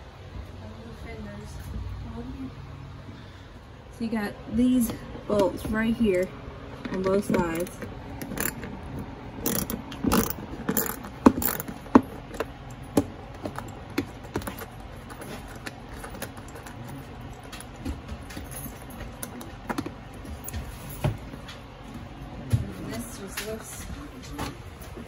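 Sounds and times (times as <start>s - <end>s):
ratchet clicking: 7.4s - 8.8s, 9.4s - 12.4s.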